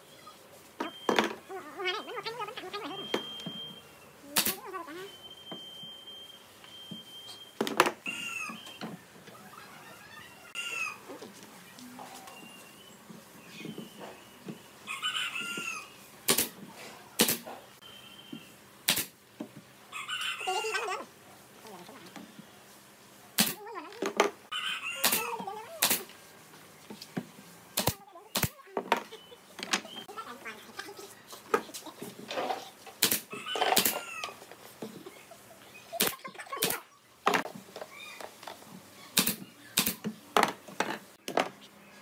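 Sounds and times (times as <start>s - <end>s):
nail gun shots: 4.4s - 4.6s, 16.3s - 16.6s, 17.2s - 17.5s, 18.9s - 19.2s, 23.4s - 23.6s, 25.0s - 25.2s, 25.8s - 26.1s, 27.8s - 28.6s, 33.0s - 34.0s, 39.2s - 40.0s
rooster crowing: 19.9s - 21.0s.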